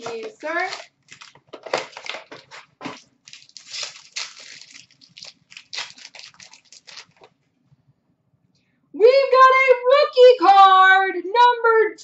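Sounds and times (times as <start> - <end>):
card pack wrapper crinkling: 0.0 - 7.4.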